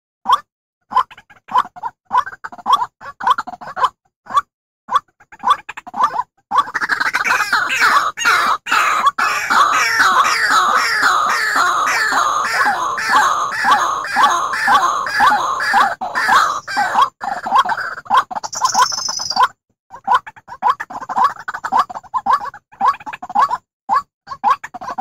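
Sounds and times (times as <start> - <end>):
waterhen calling falling notes: 7.3 - 17.0.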